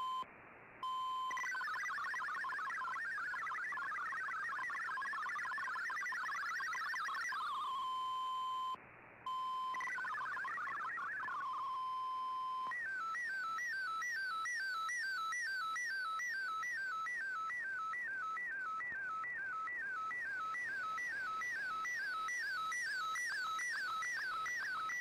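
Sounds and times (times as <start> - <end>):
warbling data tones: 1.3 - 7.9, 9.5 - 12.2.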